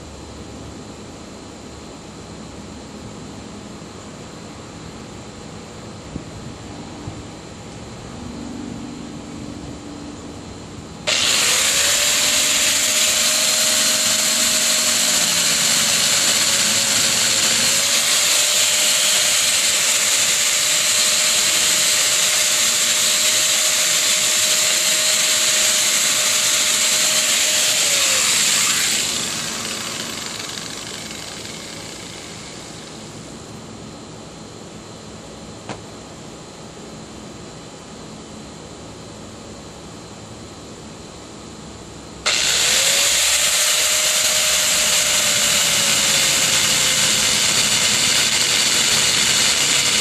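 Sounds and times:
angle grinder cutting pipe: 0:11.1 - 0:33.1, 0:42.3 - 0:50.0.

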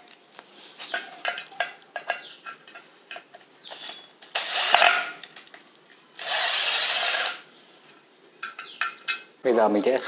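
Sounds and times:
cordless drill burst: 0:03.8 - 0:05.1, 0:06.2 - 0:07.5.

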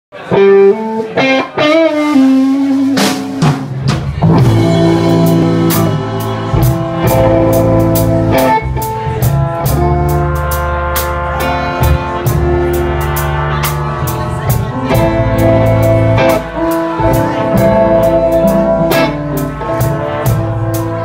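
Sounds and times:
electric guitar lead with bent notes: 0:00.1 - 0:21.0
drums: 0:00.2 - 0:21.0
live blues band: 0:00.2 - 0:21.0
brass section holding chords: 0:04.2 - 0:21.0.

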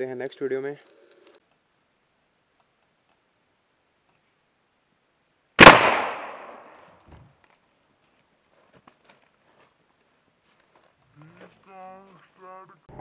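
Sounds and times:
air rifle bang: 0:05.6 - 0:06.8.

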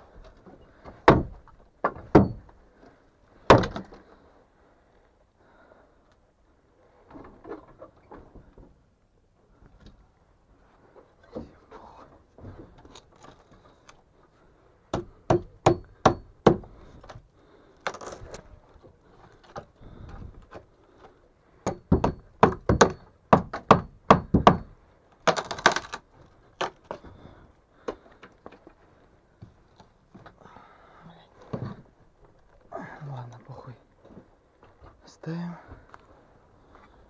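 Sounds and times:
sharp knocks and thuds: 0:00.8 - 0:02.5, 0:03.5 - 0:04.0, 0:14.9 - 0:17.2, 0:21.6 - 0:26.0.

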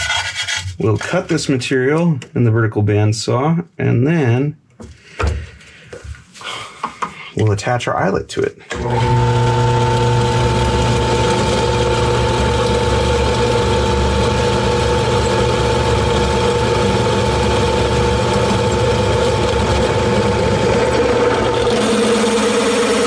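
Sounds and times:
drill press boring through steel: 0:08.7 - 0:23.0.

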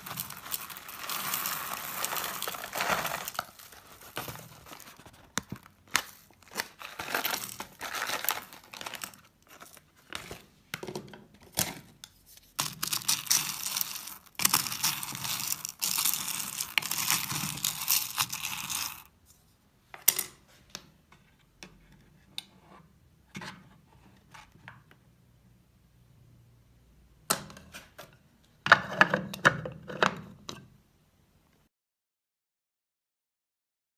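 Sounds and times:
wax beads rattling into pot: 0:00.0 - 0:05.0, 0:06.4 - 0:09.8, 0:12.6 - 0:19.1
spatula stirring beads: 0:00.0 - 0:09.9, 0:12.3 - 0:19.2
plastic pouch crinkling: 0:00.0 - 0:10.4, 0:12.6 - 0:19.1.

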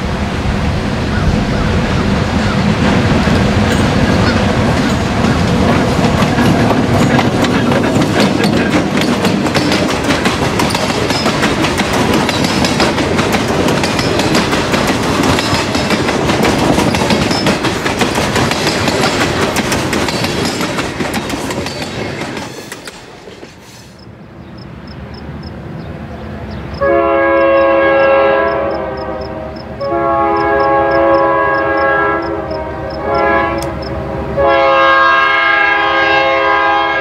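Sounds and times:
freight train rumbling past: 0:00.0 - 0:37.0
wheels clacking over rail joints: 0:02.8 - 0:23.7.

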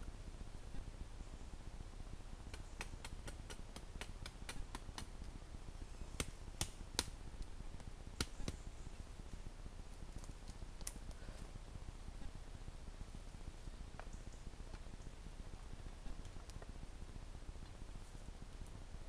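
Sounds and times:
twigs cracking and snapping: 0:10.1 - 0:11.2.

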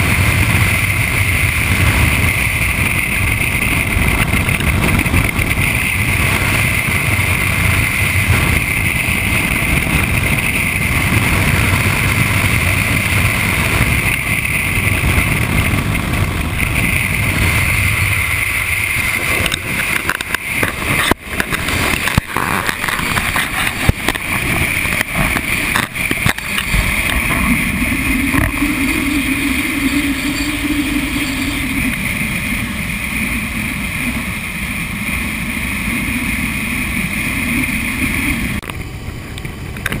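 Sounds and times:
motorcycle engine: 0:00.0 - 0:40.0
wind rushing over camera: 0:00.0 - 0:40.0
tyre noise: 0:18.8 - 0:32.4.

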